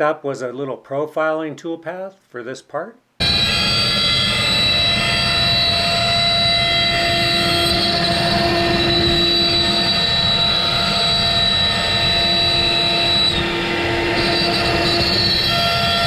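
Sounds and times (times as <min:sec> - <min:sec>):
bit cutting wood: 0:03.2 - 0:16.0
router spindle whining: 0:03.2 - 0:16.0.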